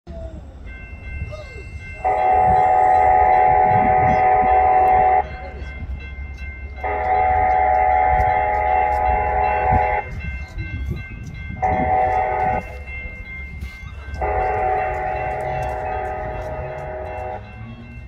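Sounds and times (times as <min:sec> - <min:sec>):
train horn chord blasts: 0:02.0 - 0:05.4, 0:06.8 - 0:10.1, 0:11.6 - 0:12.7, 0:14.1 - 0:18.0.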